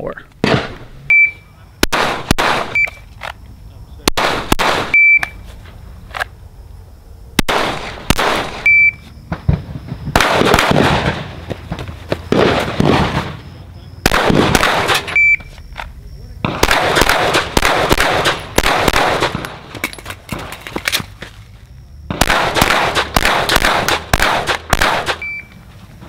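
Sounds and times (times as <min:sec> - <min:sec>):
shot timer beeping: 0:01.1 - 0:01.4, 0:02.7 - 0:03.0, 0:04.9 - 0:05.4, 0:08.6 - 0:09.0, 0:15.1 - 0:15.6, 0:25.1 - 0:25.6
rapid pistol shots: 0:01.8 - 0:02.8, 0:04.0 - 0:05.1, 0:07.4 - 0:08.7, 0:10.1 - 0:11.4, 0:12.3 - 0:13.4, 0:14.0 - 0:15.2, 0:16.4 - 0:19.7, 0:22.1 - 0:25.3.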